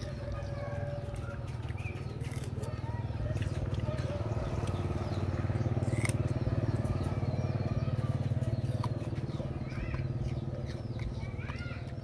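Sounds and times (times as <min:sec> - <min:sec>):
small engine running: 0:00.6 - 0:12.0.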